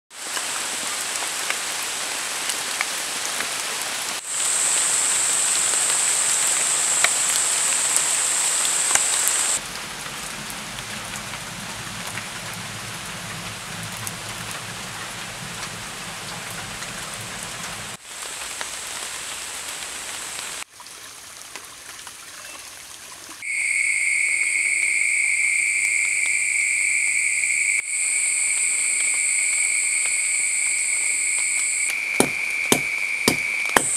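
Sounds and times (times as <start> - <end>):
steady rain falling: 0.1 - 33.9
high insect whine: 4.3 - 9.6, 23.4 - 33.9
high-pitched insect calls: 23.4 - 33.9
wood fire burning: 31.9 - 33.9.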